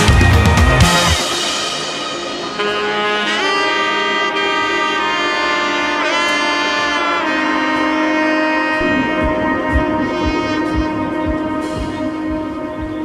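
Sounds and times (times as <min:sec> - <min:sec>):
horn melody with sliding notes: 0:00.0 - 0:13.0
deep regular drum beat: 0:08.8 - 0:13.0.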